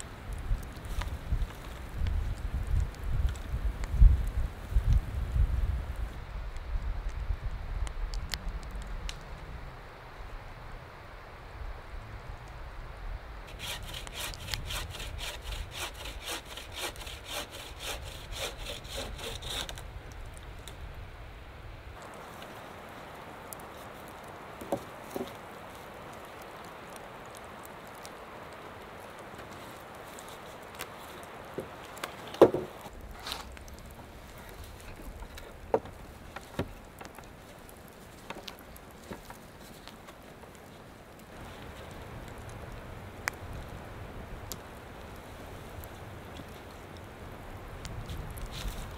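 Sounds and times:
saw rasping through wood: 0:13.5 - 0:19.8
wood knocking against wood: 0:32.3 - 0:32.9.

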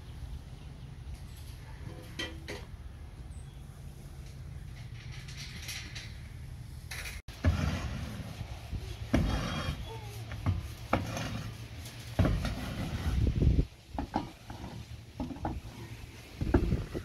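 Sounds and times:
push broom scraping on plywood: 0:07.3 - 0:17.0.

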